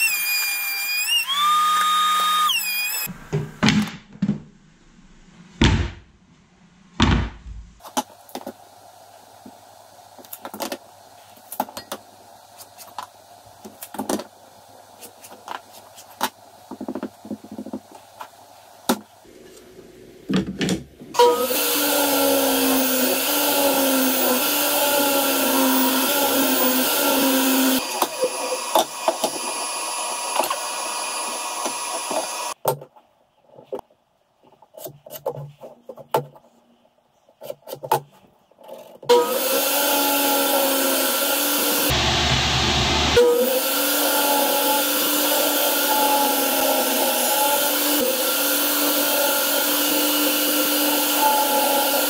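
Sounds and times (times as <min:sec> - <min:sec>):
table saw cutting wood: 0:00.0 - 0:03.2, 0:21.2 - 0:32.6, 0:39.1 - 0:52.0.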